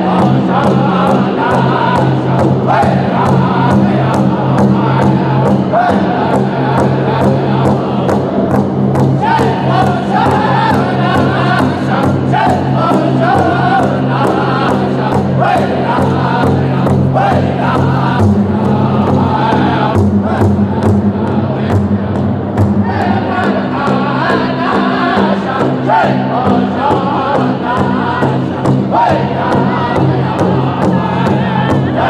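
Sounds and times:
men singing in chant-like voices: 0.0 - 22.2, 22.8 - 32.0
big drum beating steadily: 0.0 - 32.0.

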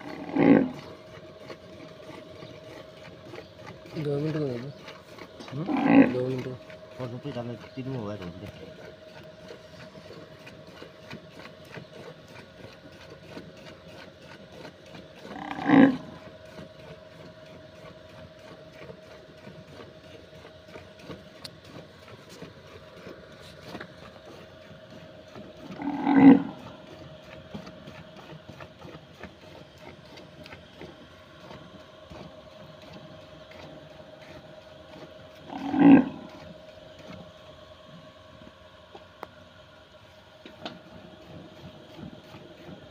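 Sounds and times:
cow mooing: 0.0 - 0.8, 5.6 - 6.2, 15.3 - 16.2, 25.8 - 26.6, 35.5 - 36.4.

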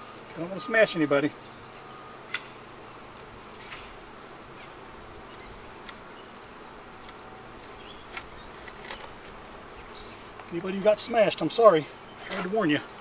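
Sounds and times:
bees buzzing: 0.0 - 13.0.

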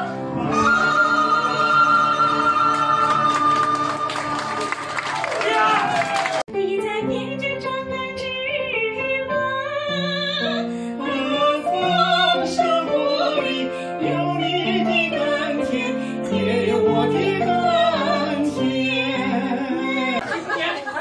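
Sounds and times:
woman singing into a microphone: 6.5 - 20.2.

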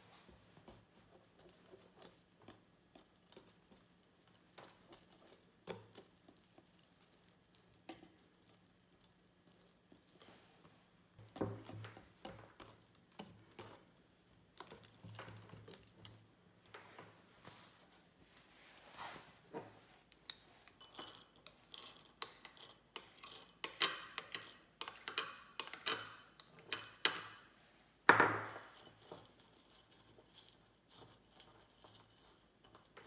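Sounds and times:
whisk stirring batter: 0.6 - 16.8, 20.0 - 27.6, 28.5 - 33.0.

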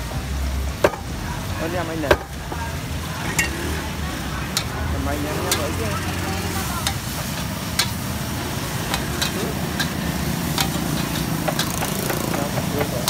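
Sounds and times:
food sizzling: 0.0 - 13.0
metal spatula scraping a wok: 3.2 - 12.6.

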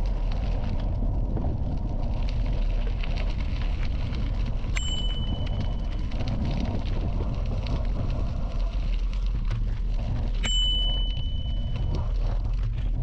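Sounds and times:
bicycle tyres rumbling on gravel: 0.0 - 13.0
gravel crackling: 0.0 - 13.0
wind: 0.0 - 13.0
bicycle bell ringing: 4.8 - 5.8, 10.4 - 11.8.

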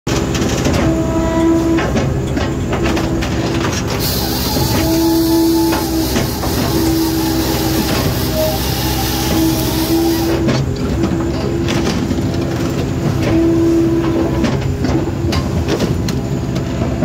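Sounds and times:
firewood processor machine hum: 0.1 - 17.0
saw cutting through log: 3.9 - 10.7.

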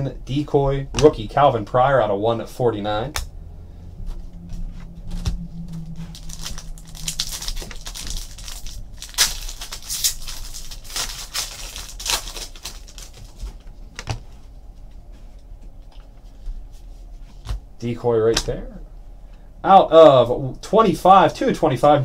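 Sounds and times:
foil wrappers crinkling and tearing: 6.0 - 13.7.

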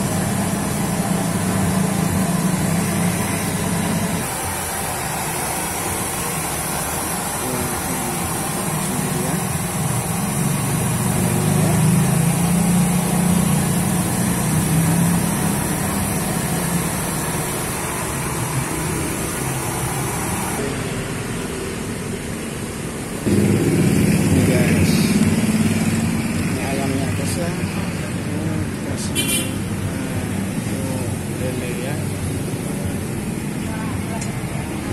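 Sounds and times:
high steady hiss: 0.0 - 20.8
vehicle engine humming: 0.0 - 34.9.

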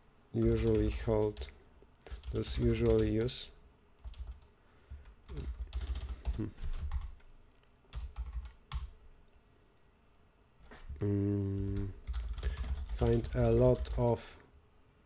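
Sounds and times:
computer keyboard typing: 0.4 - 3.4, 4.0 - 7.3, 7.9 - 8.9, 11.6 - 14.3.

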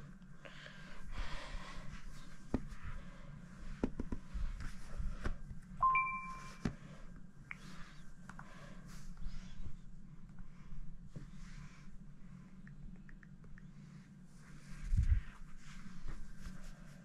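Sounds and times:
taps and knocks on tablets: 3.8 - 4.2
two-tone electronic chime: 5.8 - 6.6.

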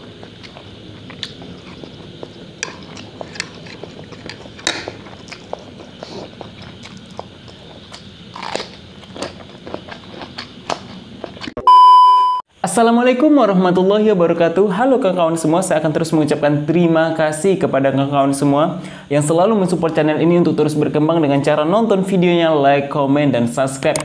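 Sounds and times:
person chewing noodles: 0.0 - 11.6
crunching bites of cucumber: 0.2 - 11.6.

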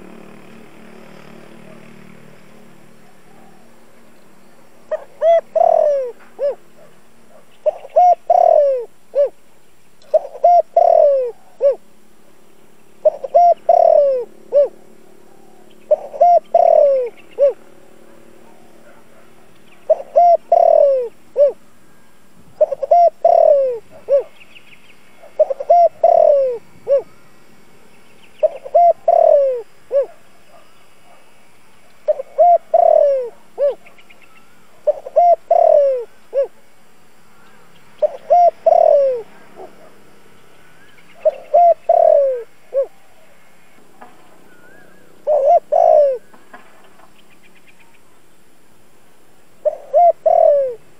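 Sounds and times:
dove cooing: 4.9 - 9.4, 10.0 - 11.9, 13.0 - 21.8, 22.6 - 24.4, 25.1 - 27.4, 28.4 - 31.3, 32.0 - 47.2, 49.6 - 50.9.

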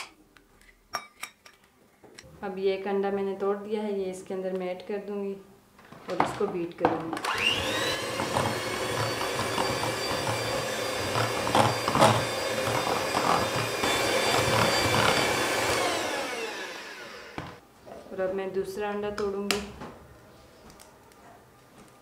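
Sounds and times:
electric hand mixer whisking: 7.2 - 17.6.

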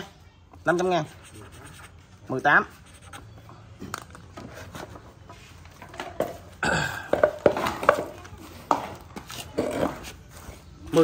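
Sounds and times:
hard objects clattering: 5.8 - 10.1.

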